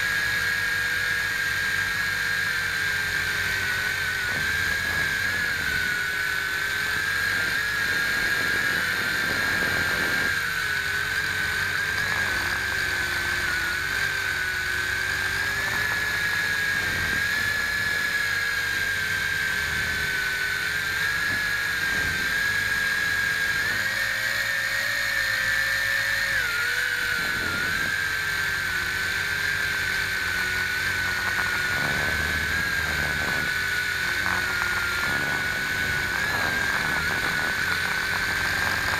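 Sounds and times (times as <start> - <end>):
quadcopter motors whining: 0.0 - 38.9.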